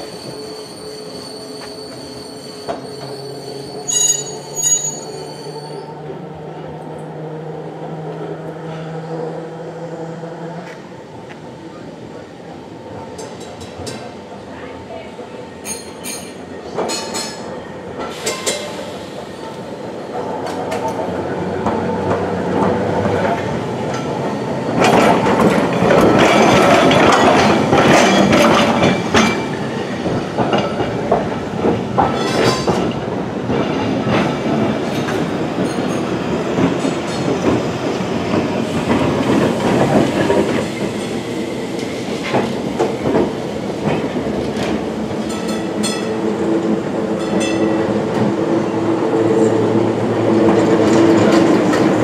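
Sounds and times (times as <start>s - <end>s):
tram rumble: 0.0s - 52.0s
tram wheels clicking over rail joints: 18.0s - 52.0s.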